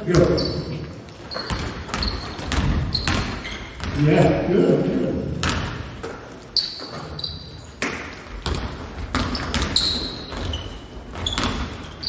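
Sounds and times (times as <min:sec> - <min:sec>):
sneakers squeaking on court: 0:00.0 - 0:04.0, 0:05.4 - 0:12.0
basketball bouncing on hardwood: 0:01.4 - 0:04.0, 0:05.4 - 0:06.2, 0:07.8 - 0:11.9.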